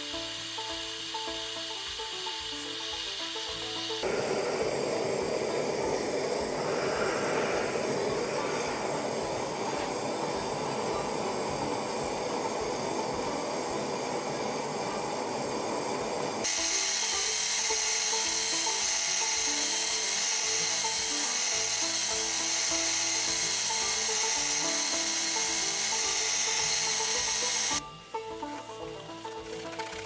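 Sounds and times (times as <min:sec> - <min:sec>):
background music: 0:00.0 - 0:04.1, 0:16.4 - 0:30.0
gas forge burner hissing: 0:00.0 - 0:30.0
belt grinder grinding blade: 0:16.4 - 0:27.8.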